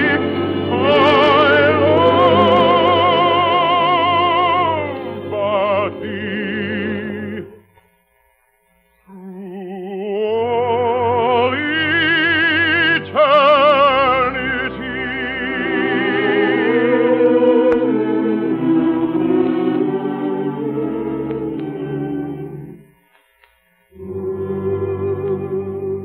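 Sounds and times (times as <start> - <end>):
operatic male voice singing: 0.0 - 7.6, 9.1 - 20.0
orchestra playing: 0.0 - 7.6, 10.6 - 22.9, 23.9 - 26.0.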